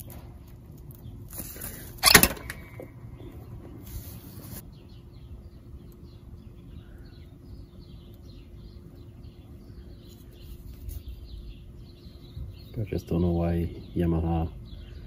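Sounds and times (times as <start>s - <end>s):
low ambient hum and rumble: 0.0s - 15.0s
small birds chirping: 0.0s - 15.0s.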